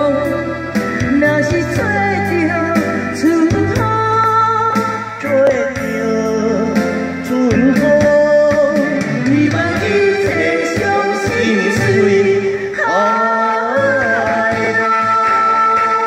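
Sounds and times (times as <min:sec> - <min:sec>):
instrumental accompaniment: 0:00.0 - 0:16.0
man and woman singing duet: 0:05.2 - 0:16.0.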